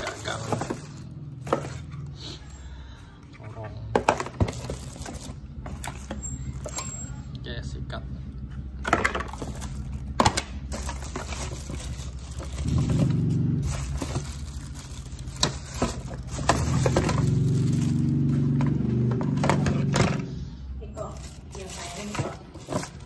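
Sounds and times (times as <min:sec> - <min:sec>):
plastic parts knocking and clattering: 0:00.0 - 0:02.0, 0:03.9 - 0:06.9, 0:08.7 - 0:20.3, 0:21.1 - 0:23.0
plastic wrap rustling: 0:00.0 - 0:02.1, 0:04.0 - 0:06.7, 0:09.2 - 0:20.1, 0:20.8 - 0:23.0.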